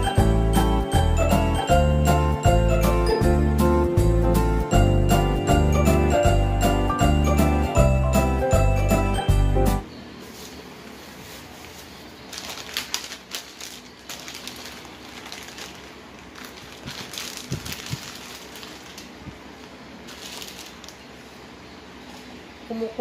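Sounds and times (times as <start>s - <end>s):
plastic packaging crinkling: 10.3s - 21.3s.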